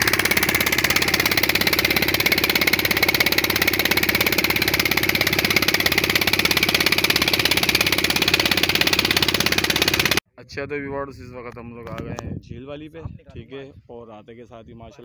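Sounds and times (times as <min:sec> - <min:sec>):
boat engine pulsing: 0:00.0 - 0:10.2.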